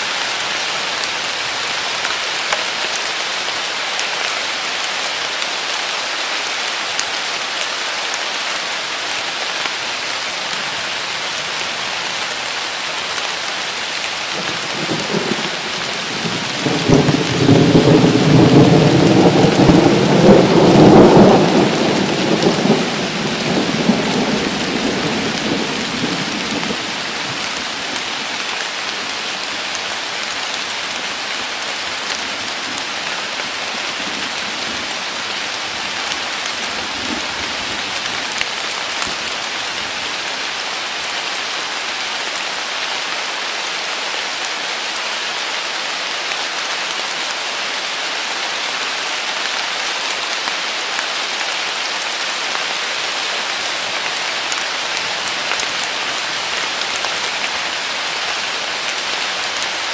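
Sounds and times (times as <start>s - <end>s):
heavy rain on leaves: 0.0s - 59.9s
thunder rumble: 14.8s - 27.1s.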